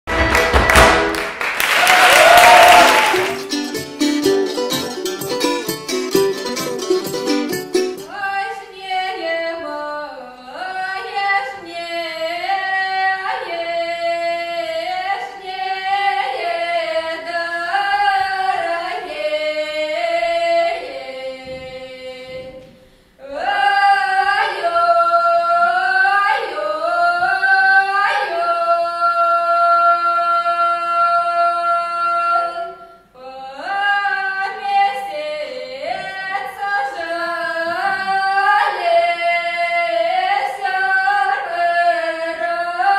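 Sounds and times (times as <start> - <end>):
women singing unaccompanied: 7.9 - 42.9.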